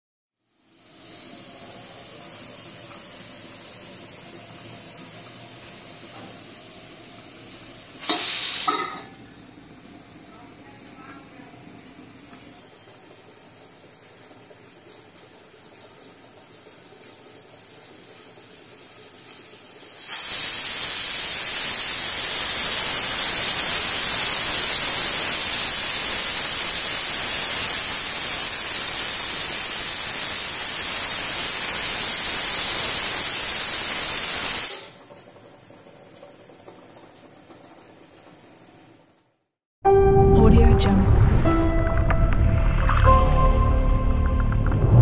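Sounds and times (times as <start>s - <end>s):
faint steam hiss: 0.4s - 39.4s
pressure cooker whistle hissing: 0.5s - 13.4s, 19.2s - 35.1s.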